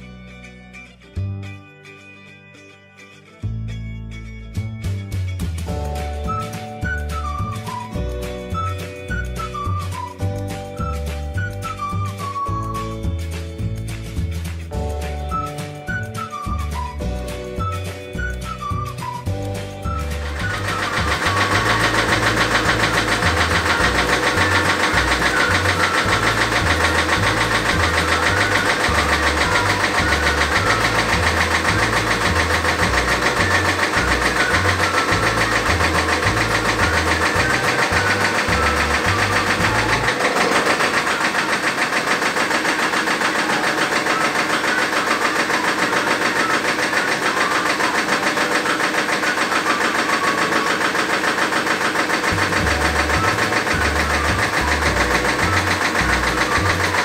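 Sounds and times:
engine running with fast pulsing: 16.2s - 57.0s.

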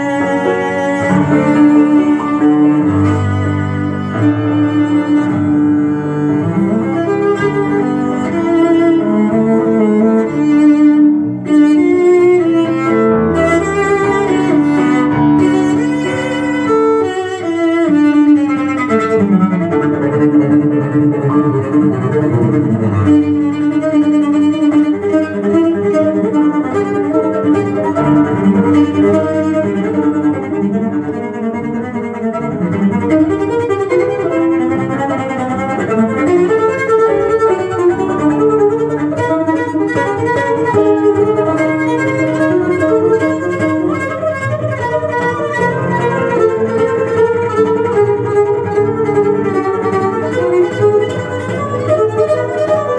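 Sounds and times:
cello music from loudspeakers: 0.0s - 52.9s.

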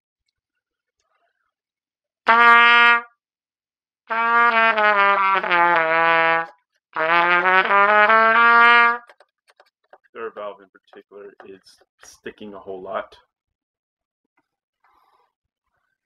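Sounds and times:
plastic trumpet playing low notes: 2.3s - 3.1s, 4.1s - 9.2s.

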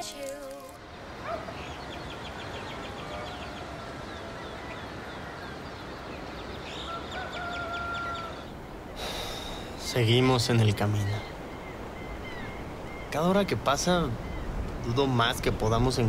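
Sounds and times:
background hiss: 0.0s - 2.5s, 8.3s - 16.0s
small birds chirping: 0.0s - 16.0s.

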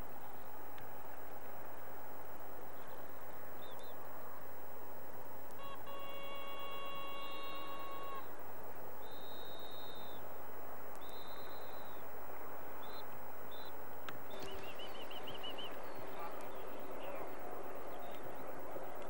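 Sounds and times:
steady hiss: 0.0s - 19.0s
high whistle blasts: 5.6s - 8.3s, 9.0s - 10.2s, 11.0s - 12.0s
whistle trill: 9.0s - 10.2s.

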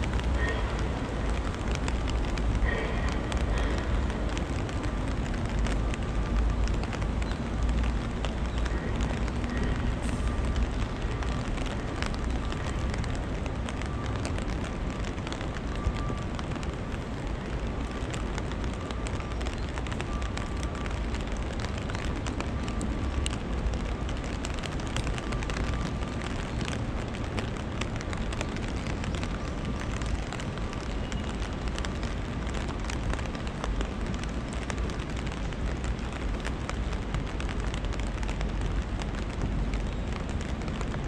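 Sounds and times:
rain hissing: 0.0s - 41.0s
raindrop ticks: 0.0s - 41.0s.

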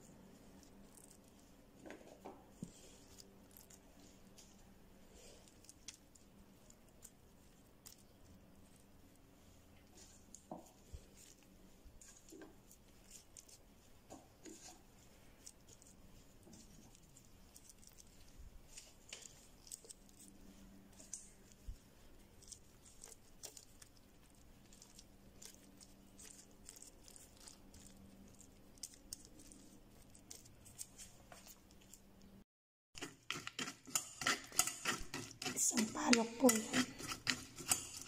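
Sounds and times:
gloved hand clicks and rustles: 21.0s - 32.0s.

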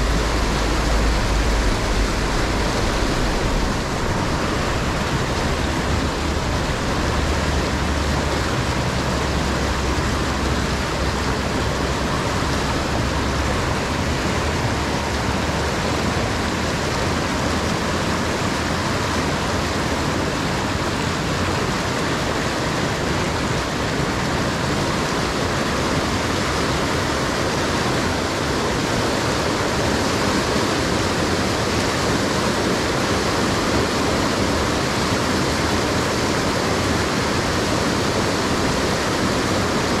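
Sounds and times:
low rumble: 0.0s - 16.4s
river rapids roaring: 0.0s - 40.0s.

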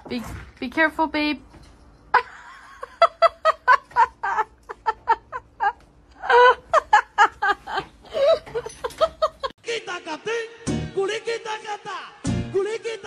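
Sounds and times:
person laughing: 2.2s - 9.5s.

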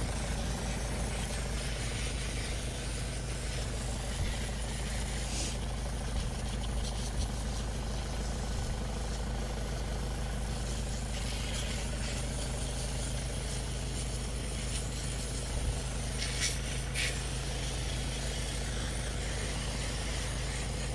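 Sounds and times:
low engine-like hum: 0.0s - 20.9s
water hissing from hose spray gun: 0.0s - 20.9s.

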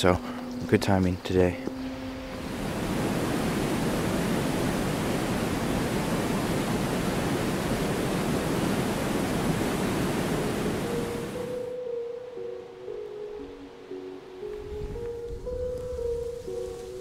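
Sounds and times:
soft music notes: 0.0s - 4.8s, 10.0s - 17.0s
rushing water: 1.8s - 11.8s.

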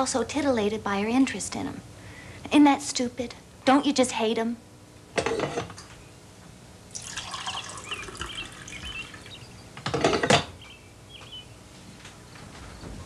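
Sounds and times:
coffee pouring into mug: 6.9s - 9.3s
faint bird chirps: 7.5s - 9.8s, 10.6s - 11.6s.

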